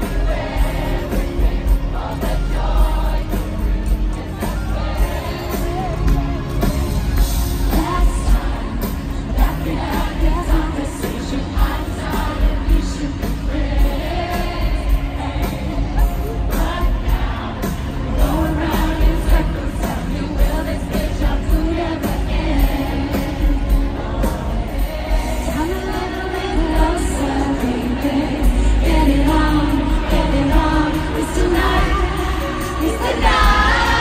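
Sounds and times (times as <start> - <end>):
bass-heavy backing track: 0.0 - 34.0
woman singing lead vocals: 0.0 - 34.0.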